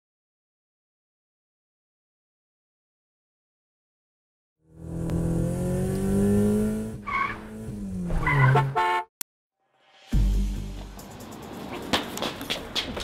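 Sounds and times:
car engine revving: 4.6 - 8.8
car horn honk: 8.2 - 9.2.

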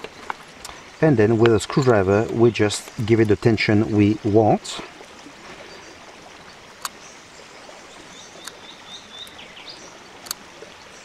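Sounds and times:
sharp clicks: 10.2 - 10.4.

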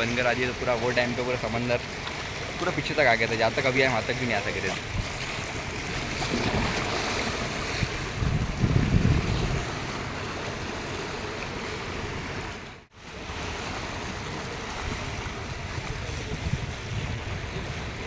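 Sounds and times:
surf washing over rocks: 0.0 - 18.0
wind buffeting microphone: 4.8 - 10.3, 13.7 - 18.0.

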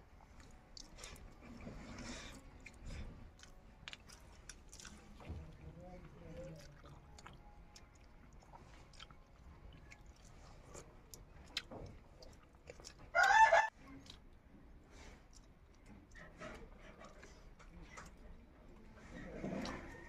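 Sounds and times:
chewing: 0.0 - 20.0
eating by hand: 0.0 - 20.0
chicken call: 13.2 - 13.7.

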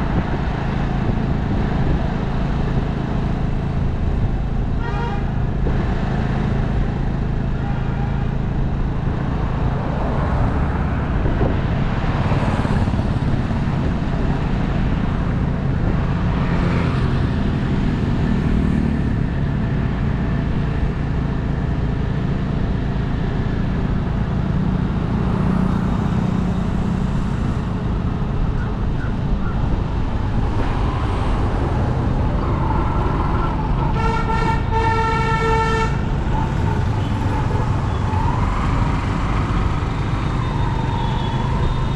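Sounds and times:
car engine and road rumble: 0.0 - 41.9
vehicle horn honking: 4.8 - 5.3, 33.9 - 36.0.

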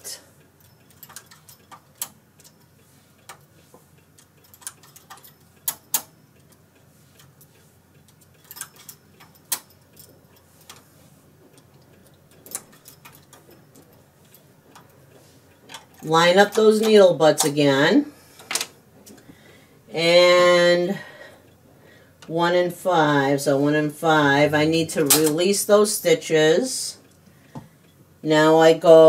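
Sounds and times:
knitting machine metallic clicks: 0.5 - 10.9, 11.5 - 17.7.

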